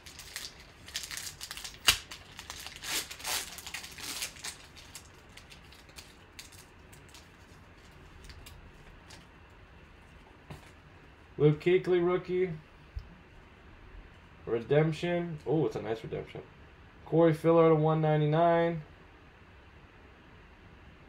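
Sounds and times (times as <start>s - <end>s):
foil wrapper crinkling: 0.0s - 9.3s
sharp crack: 0.2s - 4.6s.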